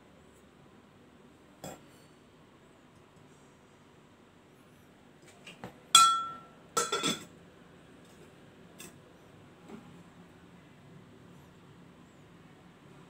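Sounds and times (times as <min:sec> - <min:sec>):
glass lid clinking: 0:06.0 - 0:07.3.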